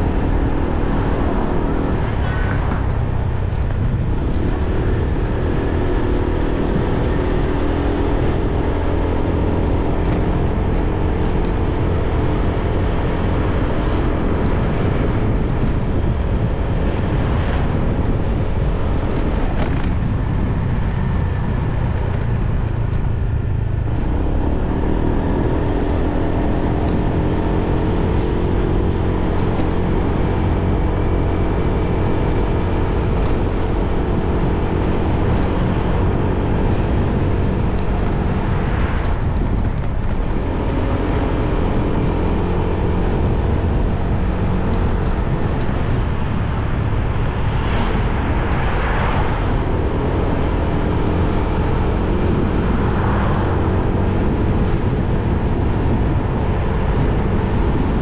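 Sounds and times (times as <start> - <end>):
wind rumble on microphone: 0.0 - 58.0.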